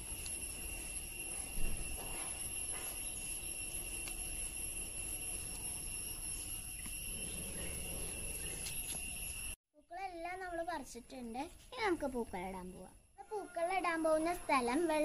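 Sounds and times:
high-pitched whine: 0:00.0 - 0:09.6.

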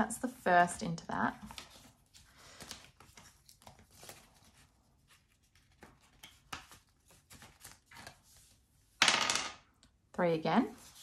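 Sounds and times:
banknotes rustling: 0:01.2 - 0:08.9.

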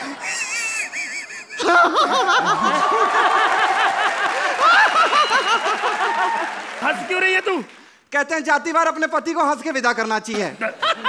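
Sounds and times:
high-pitched giggling laugh: 0:00.0 - 0:02.7
audience laughing: 0:00.0 - 0:06.5, 0:10.6 - 0:11.0.

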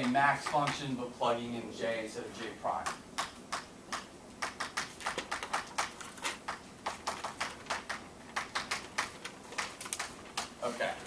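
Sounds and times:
chalk tapping on blackboard: 0:00.0 - 0:00.9, 0:02.8 - 0:10.5.

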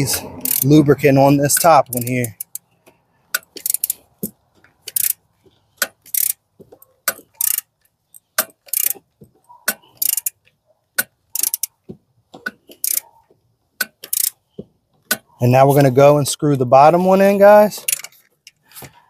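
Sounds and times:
hand ratchet clicking: 0:00.0 - 0:05.2, 0:05.8 - 0:06.4, 0:07.0 - 0:11.8, 0:12.4 - 0:13.2, 0:13.8 - 0:14.4, 0:17.8 - 0:18.6.

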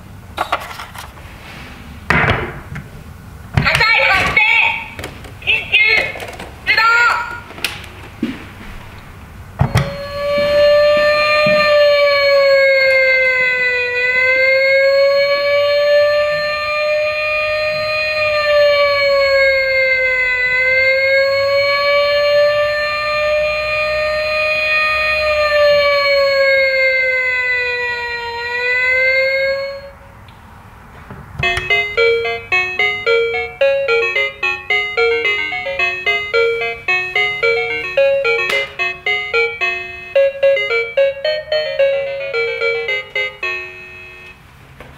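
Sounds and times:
toy electronic siren wail: 0:09.7 - 0:30.0, 0:31.4 - 0:44.4
electronic jingle of beeps: 0:31.4 - 0:44.4.

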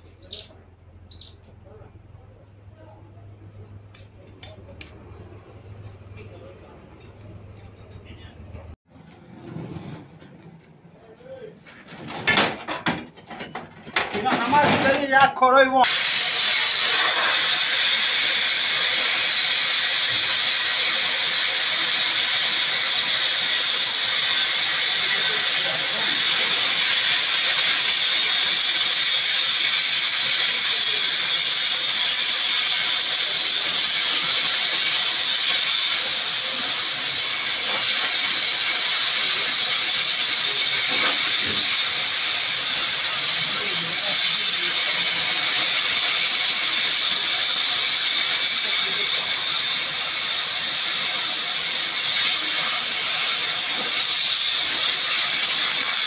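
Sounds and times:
cutting torch hissing: 0:15.8 - 0:56.0.

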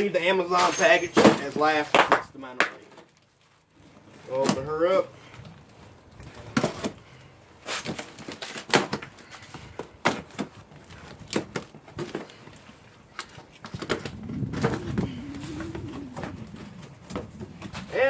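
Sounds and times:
packing tape and cardboard ripping: 0:07.6 - 0:12.4.

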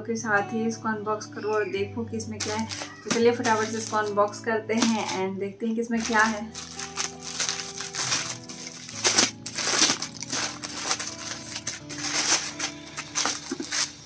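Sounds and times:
background music with held notes: 0:00.0 - 0:14.0
plastic mailer bag crinkling: 0:02.4 - 0:05.2, 0:06.0 - 0:14.0.

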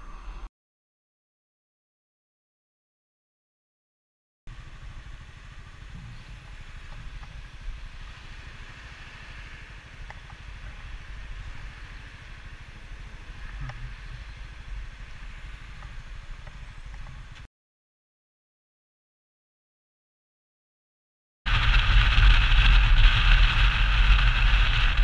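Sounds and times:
motorcycle engine rumbling: 0:04.5 - 0:17.5, 0:21.5 - 0:25.0.

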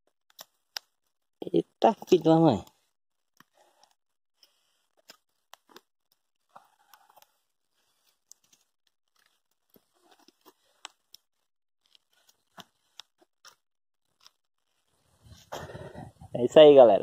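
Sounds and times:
wood fire crackling and popping: 0:03.4 - 0:13.6.

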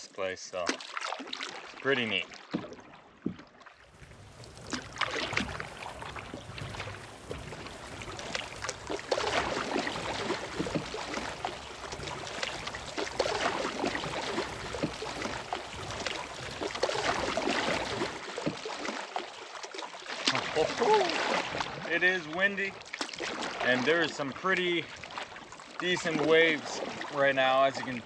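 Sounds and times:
lake water lapping and splashing: 0:00.0 - 0:28.0
wind rumbling on microphone: 0:03.9 - 0:18.2.

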